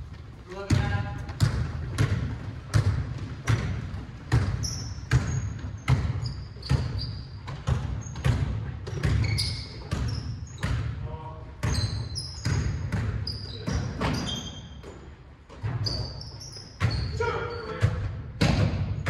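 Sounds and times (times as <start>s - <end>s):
sneaker squeaks: 0.0s - 10.9s, 11.6s - 18.1s
basketball bouncing on hardwood floor: 0.1s - 10.9s, 11.6s - 15.0s.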